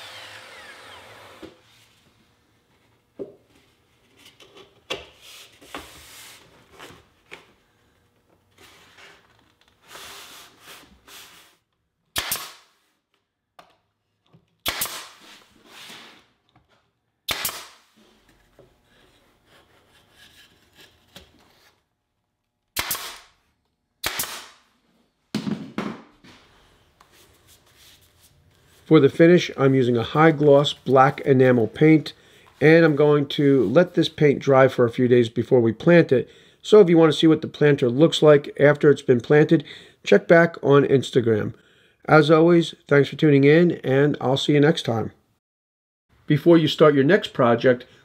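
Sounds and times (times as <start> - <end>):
nail gun shots: 12.1 - 12.7, 14.6 - 15.2, 17.3 - 17.9, 22.8 - 23.4, 24.0 - 24.6.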